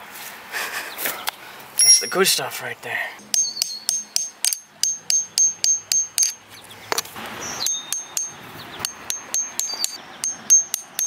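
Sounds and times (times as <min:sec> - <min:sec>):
hammer tapping metal chisel: 0:03.2 - 0:11.0.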